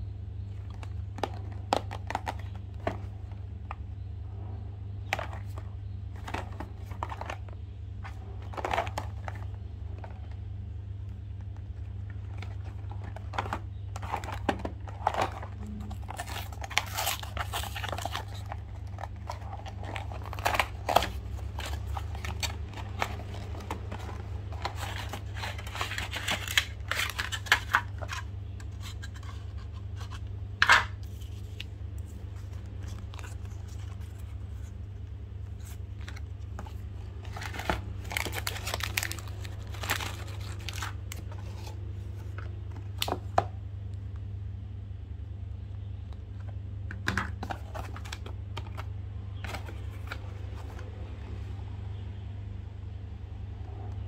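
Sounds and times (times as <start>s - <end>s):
steady low hum: 0.0s - 54.0s
packaging crinkling: 5.2s - 10.4s, 11.7s - 43.2s.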